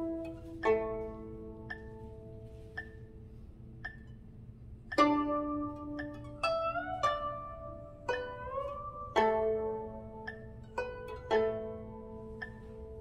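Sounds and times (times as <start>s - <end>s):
plucked zither melody: 0.0s - 13.0s.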